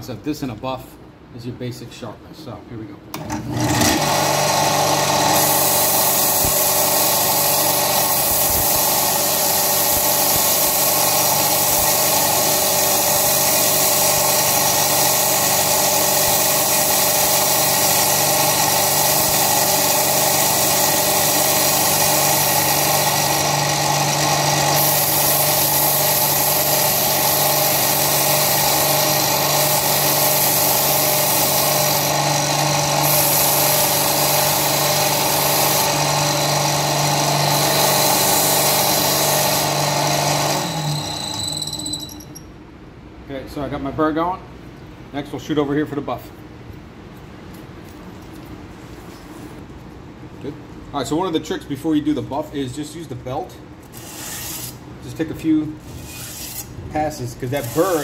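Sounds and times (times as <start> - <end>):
belt sander running: 3.2 - 42.2, 57.5 - 58.0
knife edge grinding on belt: 53.8 - 54.8, 55.8 - 56.8, 57.5 - 58.0.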